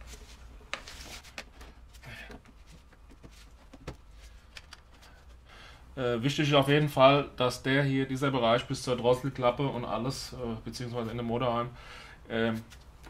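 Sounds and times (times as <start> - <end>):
faint handling noise: 0.0 - 5.4.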